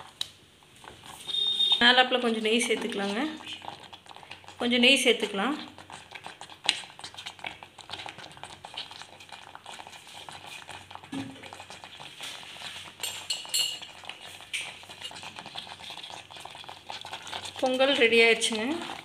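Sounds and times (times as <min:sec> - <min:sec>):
thick food bubbling in pot: 0:00.0 - 0:19.0
steel spoon clinking on pot: 0:13.0 - 0:14.0.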